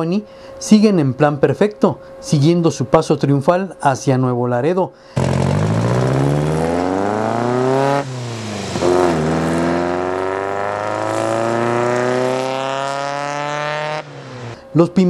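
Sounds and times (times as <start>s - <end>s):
car engine pulling away: 5.2s - 14.6s
rally car engines accelerating hard: 5.2s - 14.6s.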